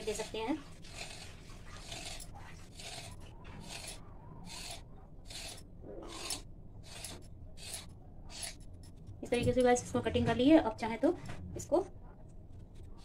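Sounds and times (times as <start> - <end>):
knife scraping dough on stone: 0.0 - 8.8.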